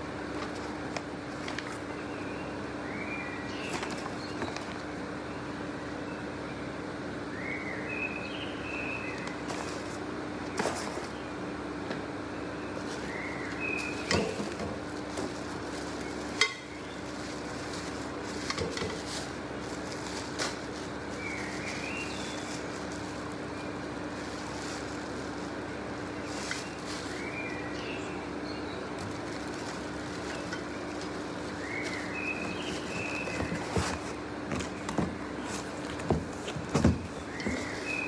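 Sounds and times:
steady low hum: 0.0 - 38.0
plastic wrapping rustling: 0.3 - 2.0, 9.3 - 11.2, 12.8 - 27.8, 28.9 - 38.0.

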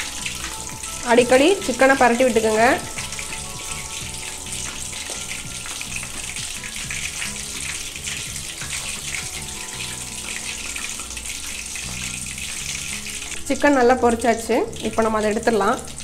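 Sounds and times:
chicken deep-frying in oil: 0.0 - 16.0.

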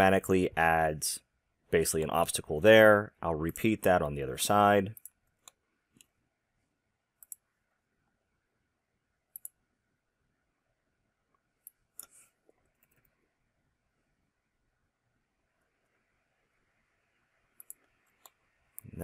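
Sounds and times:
computer mouse clicks: 7.2 - 7.5, 9.3 - 9.6, 11.6 - 13.2, 17.6 - 18.9.

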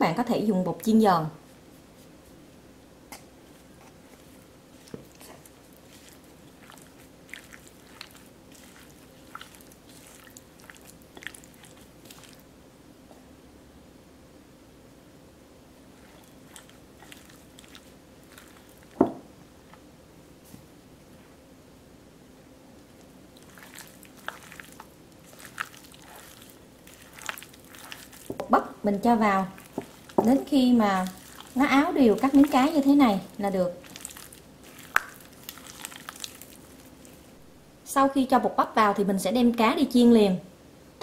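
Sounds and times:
faint steady hum: 0.0 - 41.0
wet squishes of mixing food: 3.4 - 12.6, 15.8 - 19.2, 22.7 - 37.5
plastic glove crinkling: 3.5 - 12.5, 15.9 - 19.1, 22.9 - 37.3
small crackles: 3.8 - 12.5, 16.0 - 19.0, 22.8 - 37.2.

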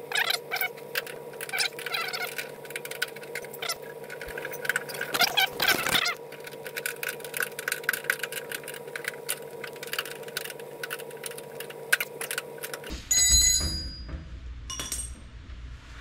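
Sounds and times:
steady background hum: 0.0 - 16.0
small metallic clicks and rattles: 0.7 - 12.9.

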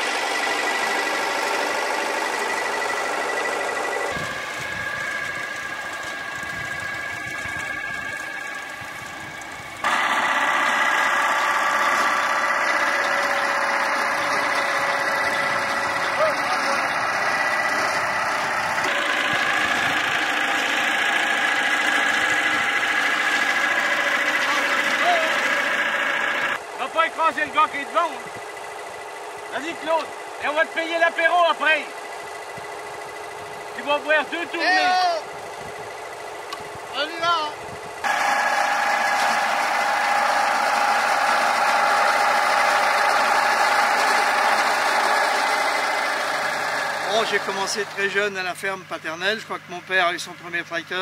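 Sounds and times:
binder mechanism working: 0.0 - 26.6, 37.9 - 48.3
constant high note: 0.0 - 28.2
tractor engine running under load: 0.0 - 51.0.

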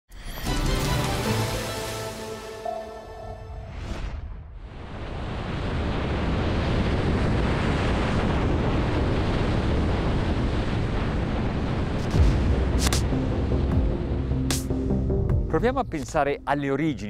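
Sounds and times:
rush of wind and water spray: 4.6 - 13.1.

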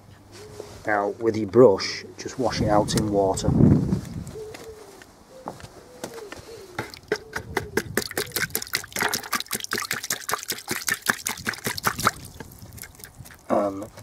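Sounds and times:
paintbrush splashing in water: 8.0 - 13.4.

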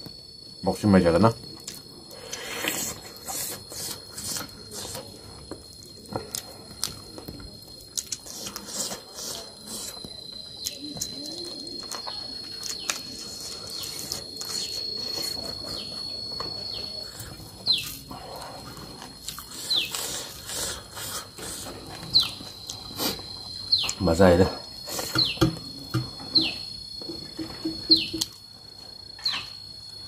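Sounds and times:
wet chewing and lip-smacking: 1.5 - 23.2
birds chirping: 15.7 - 18.0, 22.1 - 22.5, 23.6 - 24.0, 25.1 - 25.6, 26.2 - 26.8, 27.6 - 28.2.

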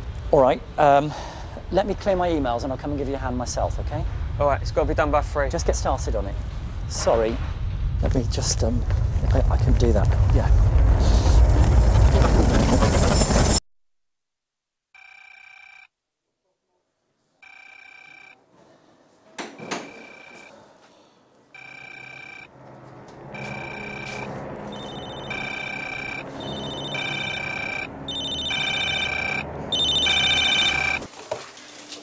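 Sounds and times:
higher telephone ring: 15.0 - 15.9, 17.4 - 18.4, 19.6 - 20.5, 21.6 - 22.5, 23.3 - 31.1
office telephones ringing: 15.0 - 15.9, 17.4 - 18.5, 19.5 - 20.5, 21.6 - 22.6, 23.3 - 31.1
low hum: 21.5 - 31.1.

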